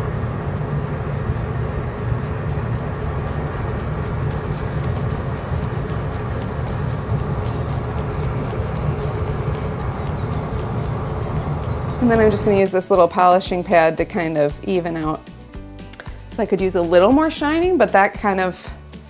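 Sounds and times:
bristle disc scratching metal: 0.0s - 12.6s
rotary tool humming: 0.0s - 12.6s.

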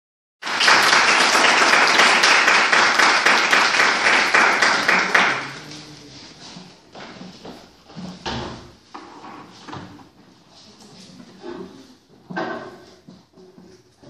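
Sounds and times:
hands clapping close by: 0.4s - 5.6s
audience applauding: 0.4s - 5.8s.

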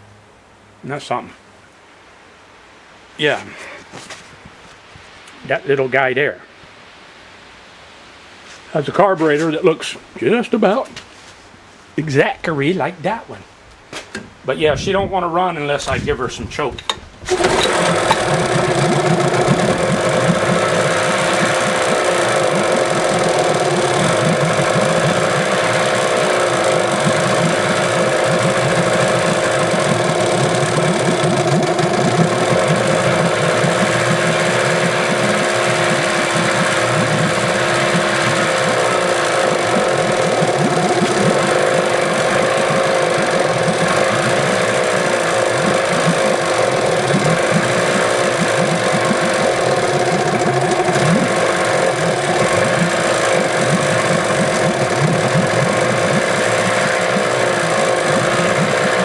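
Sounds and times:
outboard engine running: 17.3s - 59.0s.

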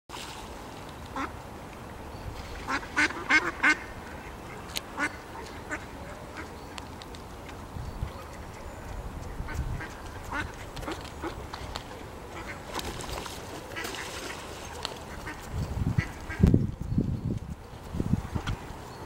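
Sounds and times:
ducks quacking: 2.7s - 6.6s, 9.3s - 11.4s, 12.3s - 12.8s.

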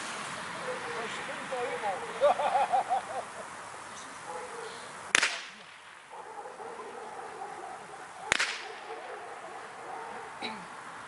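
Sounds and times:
pistol shots with echo: 5.1s - 6.1s, 8.2s - 9.2s.

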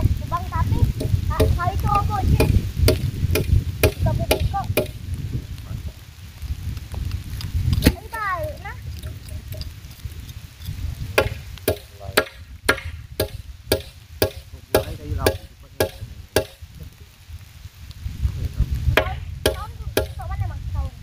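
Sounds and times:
tool striking timber posts: 1.0s - 1.6s, 2.4s - 5.0s, 11.2s - 16.6s, 19.0s - 20.2s.

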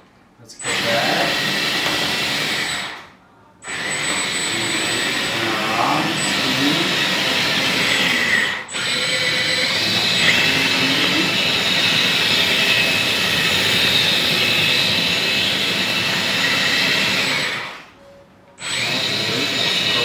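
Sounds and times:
hydraulic pump high whine: 0.6s - 18.0s, 18.6s - 20.0s.

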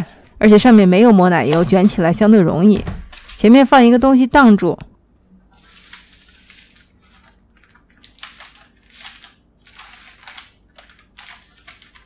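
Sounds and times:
parchment paper crinkling: 5.5s - 12.0s.

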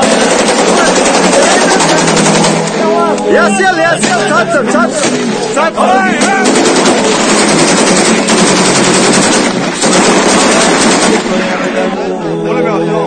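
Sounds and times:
automatic rifle fire: 0.0s - 2.8s, 6.2s - 11.4s
man shouting: 0.7s - 2.1s, 2.9s - 5.0s, 5.6s - 6.6s.

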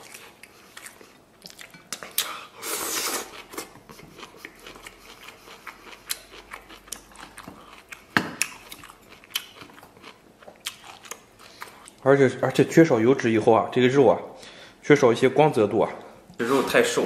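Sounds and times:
chewing with wet mouth clicks: 0.0s - 2.4s, 3.4s - 12.0s.

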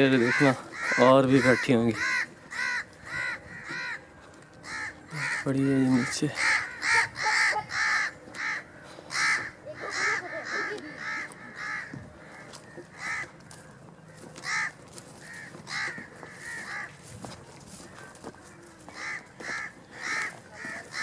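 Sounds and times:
crows cawing: 0.0s - 21.0s.

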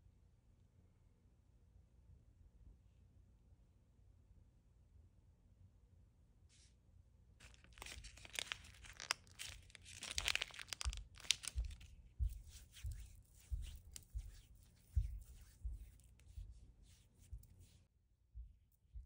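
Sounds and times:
foil sachet tearing and crinkling: 7.4s - 11.9s.

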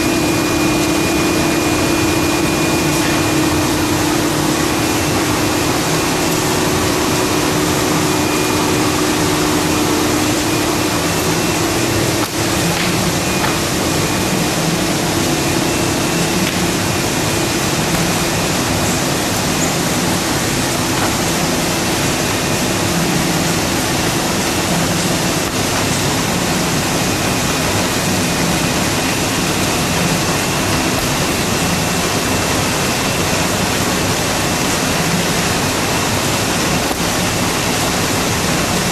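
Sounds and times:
paper cutting machine humming: 0.0s - 38.9s.

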